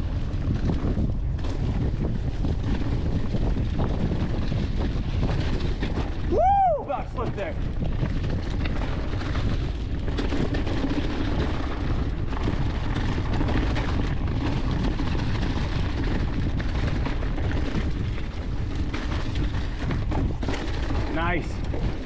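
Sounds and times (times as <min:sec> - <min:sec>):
bike tyres crackling through leaves: 0:00.0 - 0:22.0
wind on microphone: 0:00.0 - 0:22.0
small clicks and rattles: 0:07.7 - 0:22.0.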